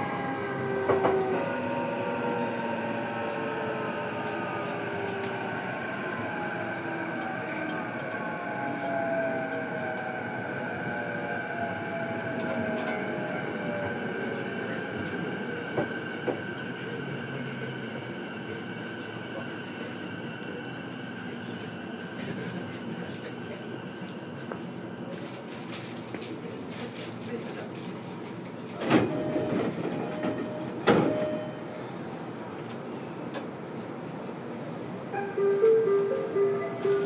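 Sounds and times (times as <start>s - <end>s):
wheels rumbling on rail: 0.0s - 37.0s.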